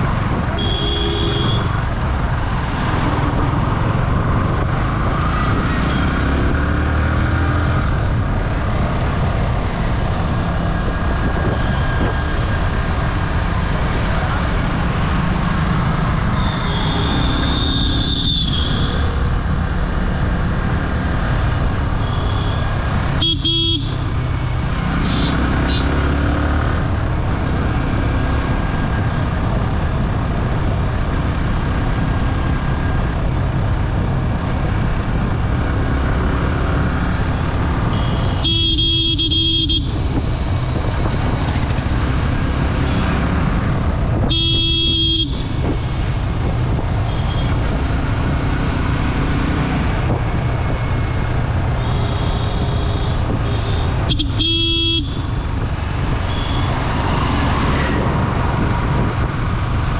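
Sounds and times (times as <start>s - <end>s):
motorcycle engine cruising: 0.0s - 59.9s
wind and road noise: 0.0s - 59.9s
vehicle horn honks: 0.6s - 1.8s, 16.4s - 18.9s, 23.2s - 24.0s, 37.9s - 40.0s, 44.3s - 45.6s, 51.8s - 55.3s, 56.3s - 56.7s.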